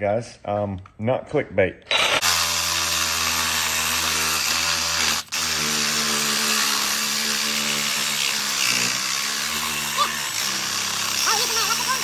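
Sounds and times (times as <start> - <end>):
reciprocating saw cutting metal: 1.9 - 12.0.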